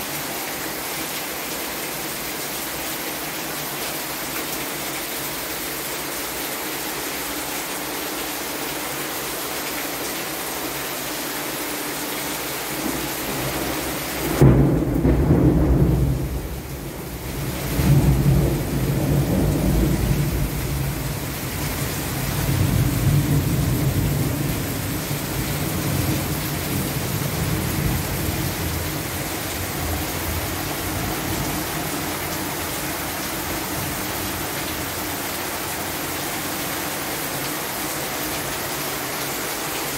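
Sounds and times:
steady rain hiss: 0.0s - 39.9s
thunder clap and rumble: 12.9s - 21.6s.

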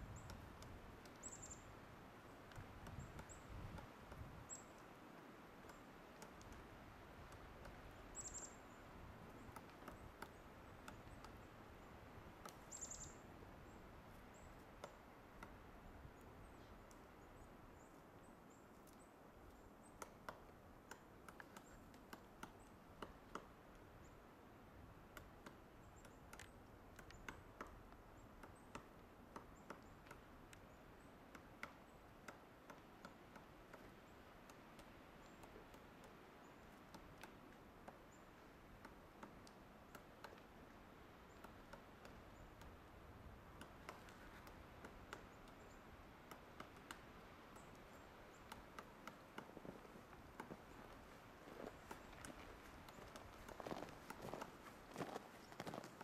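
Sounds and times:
steady low hiss: 0.0s - 56.0s
woodpecker knocking on wood: 5.6s - 13.1s, 19.9s - 24.1s, 25.1s - 56.0s.

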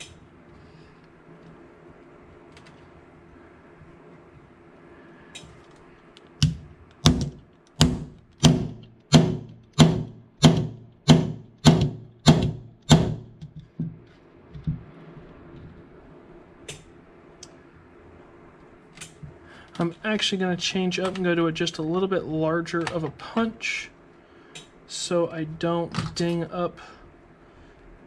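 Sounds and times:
hammer striking pin punch: 6.4s - 14.0s.

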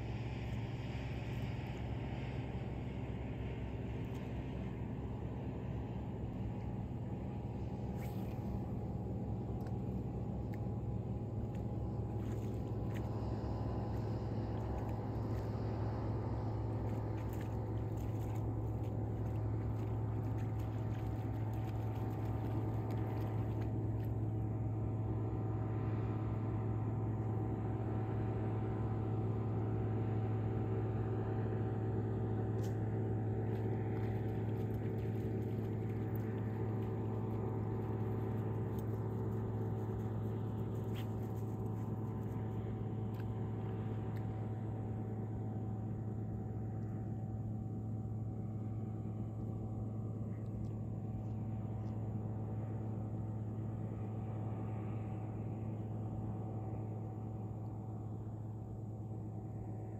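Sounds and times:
engine hum: 0.0s - 59.9s
faint splashes or clicks: 16.8s - 24.2s.

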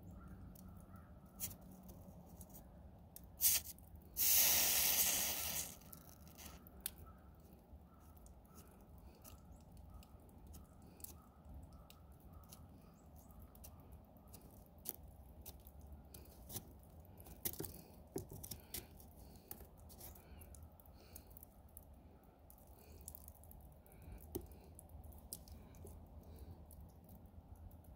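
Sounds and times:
snow crackling on hot nozzle: 3.4s - 6.6s.

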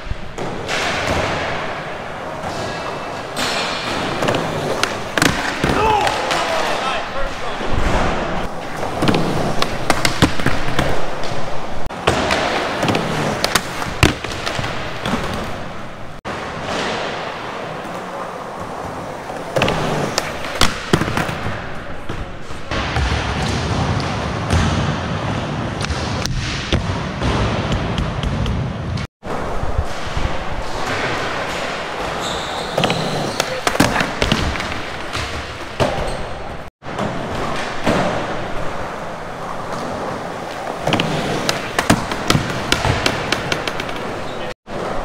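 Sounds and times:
skateboard wheels rolling on concrete: 0.0s - 22.8s, 27.7s - 45.0s
skateboard popping and landing: 7.9s - 22.2s.

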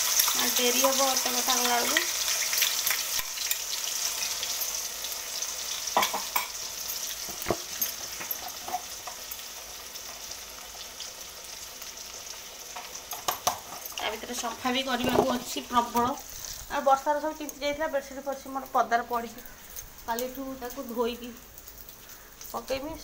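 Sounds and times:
food sizzling in oil: 0.0s - 23.0s
spoon knocking against pan: 6.0s - 6.6s.

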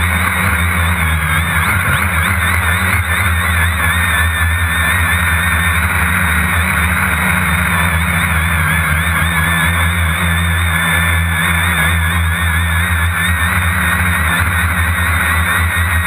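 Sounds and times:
electric motor and propeller whine: 0.0s - 16.0s
low hum: 0.0s - 16.0s.

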